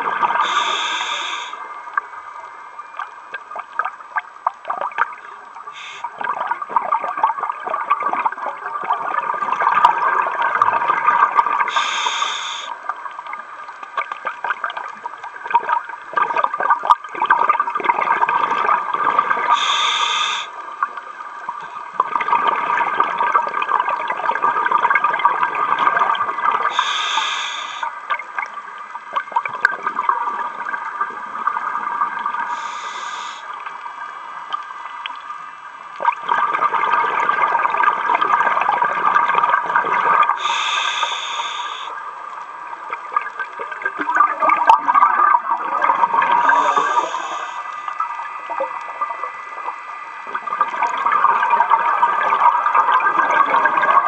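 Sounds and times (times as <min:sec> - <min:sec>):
underwater exhaust bubbling: 0:00.0 - 0:54.0
regulator hissing: 0:00.4 - 0:01.6, 0:05.8 - 0:06.1, 0:11.7 - 0:12.7, 0:19.6 - 0:20.5, 0:26.7 - 0:27.9, 0:32.5 - 0:33.6, 0:40.4 - 0:42.0, 0:46.4 - 0:48.0.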